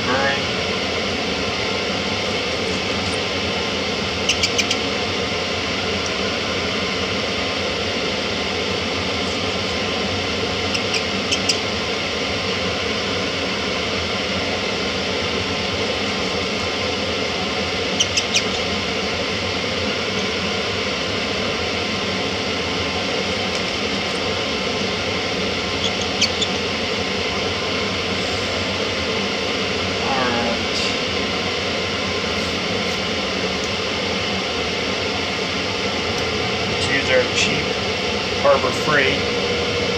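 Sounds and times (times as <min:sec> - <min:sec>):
metal lathe running: 0:00.0 - 0:39.9.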